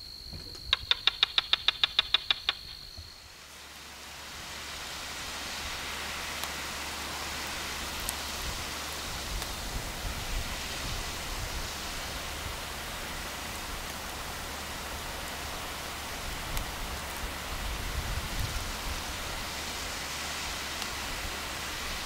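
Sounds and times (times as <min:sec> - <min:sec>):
outdoor ambience hiss: 0:00.0 - 0:22.0
quick loud clicks: 0:00.4 - 0:03.0.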